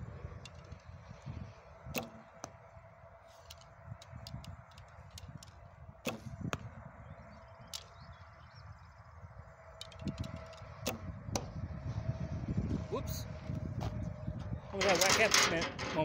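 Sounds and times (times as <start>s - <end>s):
wind rumble on microphone: 0.0s - 16.0s
arrow striking target: 1.8s - 2.7s, 3.3s - 6.8s, 9.8s - 11.6s
arrow being nocked clicks: 1.9s - 2.6s, 3.3s - 6.6s, 9.8s - 11.5s
bowstring snapping: 1.9s - 2.6s, 9.8s - 11.5s.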